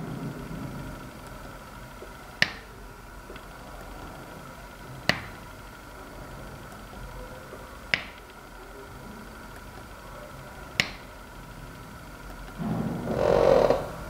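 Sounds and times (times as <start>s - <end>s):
finger snaps: 10.8s - 11.0s.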